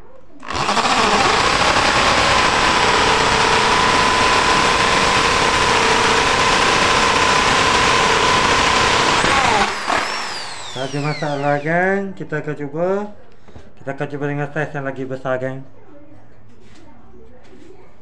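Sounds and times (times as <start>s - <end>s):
drill boring into wood: 0.4s - 11.9s
drill motor winding down: 0.4s - 11.9s.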